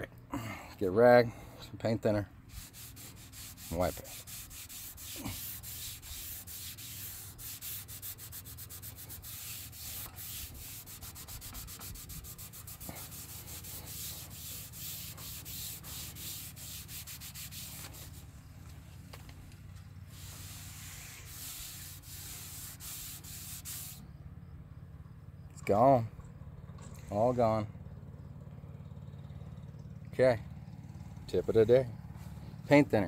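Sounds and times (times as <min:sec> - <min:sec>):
rag scrubbing a railing: 0:02.5 - 0:18.3, 0:20.0 - 0:24.0.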